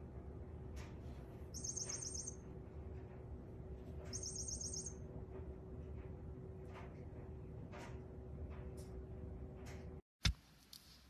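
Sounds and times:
toy electronic chirping: 1.6 - 2.4, 4.1 - 5.0.

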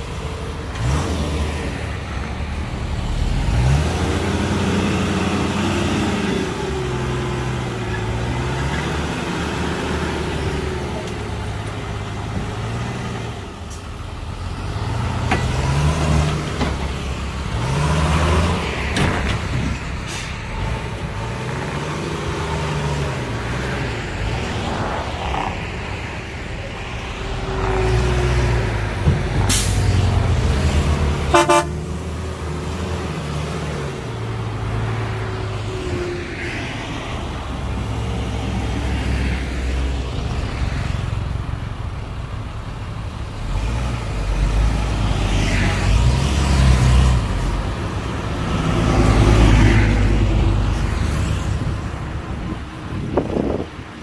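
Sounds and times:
heavy diesel engine revving: 0.0 - 26.0
short horn toot: 31.3 - 31.8.

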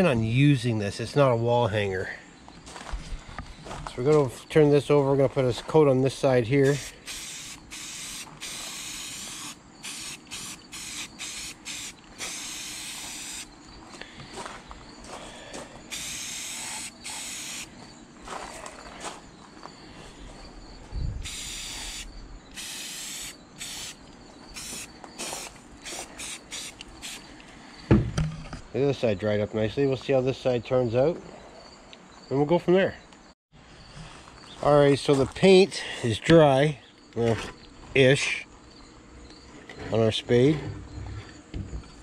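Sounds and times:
spray paint can hissing: 6.6 - 13.5, 15.9 - 17.7, 21.2 - 27.2.

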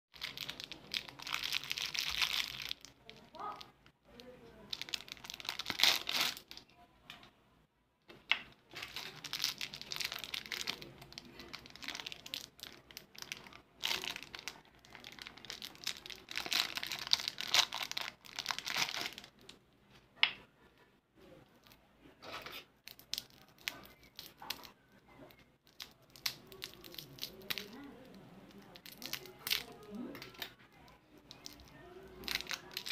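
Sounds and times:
plastic wrappers crinkling and tearing: 0.2 - 6.6, 8.7 - 19.6, 21.6 - 32.9.

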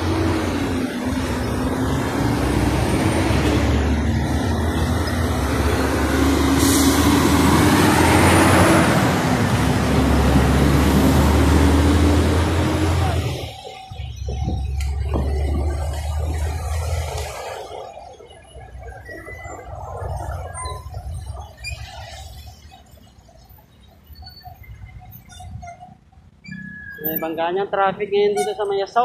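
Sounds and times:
idling traffic engine drone: 0.0 - 29.0.

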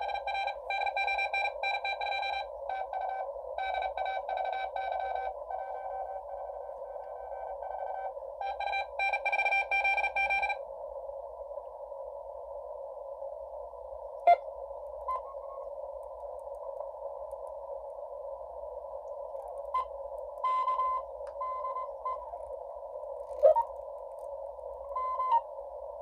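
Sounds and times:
morse code beeping: 0.0 - 6.2
receiver hiss: 0.0 - 26.0.

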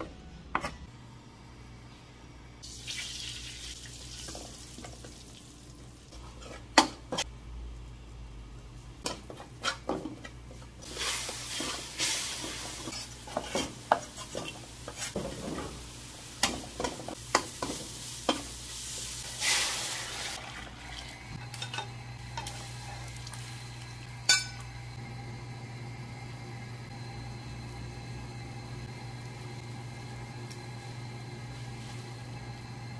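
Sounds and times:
oil sizzling: 2.6 - 7.8, 8.5 - 32.9.

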